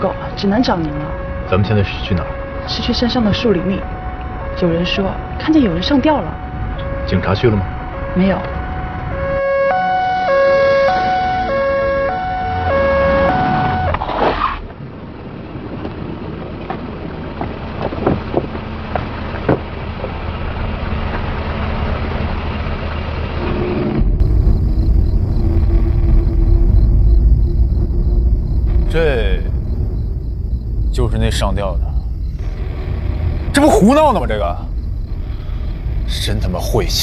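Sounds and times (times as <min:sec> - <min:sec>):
ambulance siren wailing: 0:00.0 - 0:14.0
low rumble: 0:14.6 - 0:37.0.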